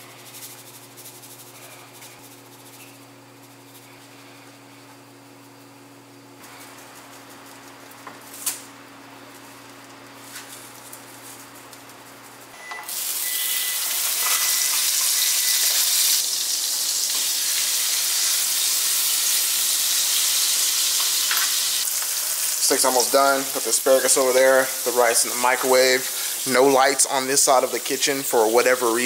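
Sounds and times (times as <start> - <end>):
steak sizzling in frying pan: 12.9 - 29.0.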